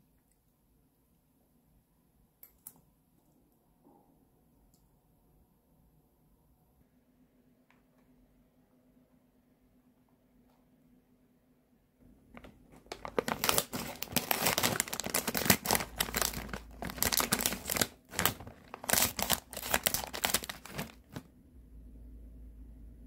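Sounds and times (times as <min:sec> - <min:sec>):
plastic bag crinkling: 0:12.3 - 0:21.3
scissors cutting plastic: 0:12.4 - 0:21.2.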